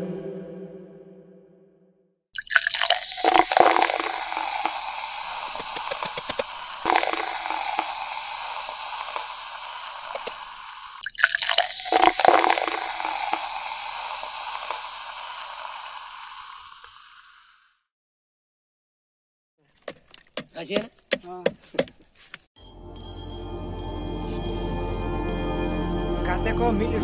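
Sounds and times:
liquid pouring through a funnel: 0:02.4 - 0:17.6.

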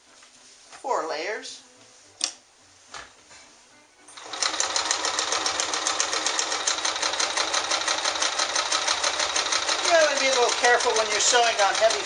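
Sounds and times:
sewing machine stitching: 0:04.2 - 0:12.0.

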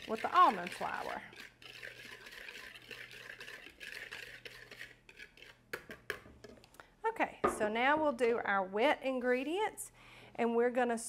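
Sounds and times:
whisk stirring in a bowl: 0:00.0 - 0:06.6.

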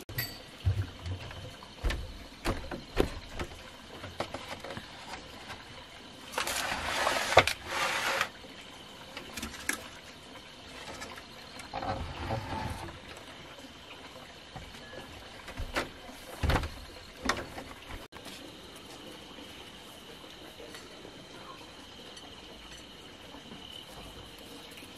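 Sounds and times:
rustle: 0:06.3 - 0:08.4.

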